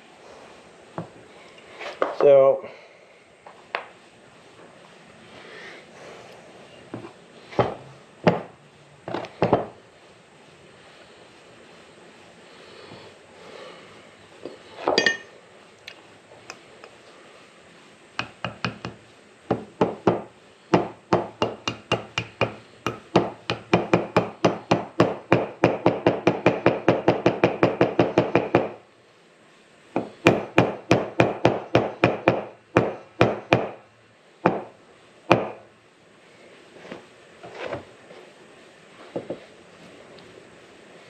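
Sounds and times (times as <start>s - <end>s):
hammer tapping metal: 18.2s - 28.8s.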